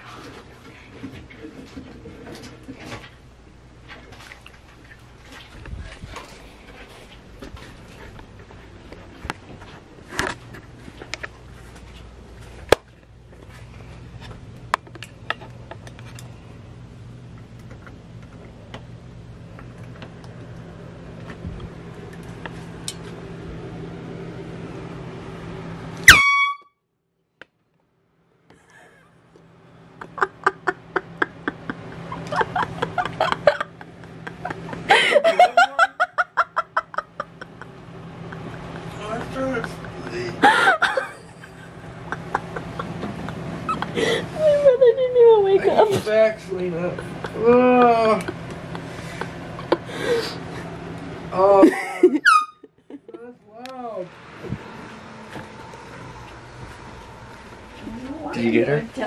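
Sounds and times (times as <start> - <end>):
air horn honk: 26.0 - 26.8, 52.2 - 52.6.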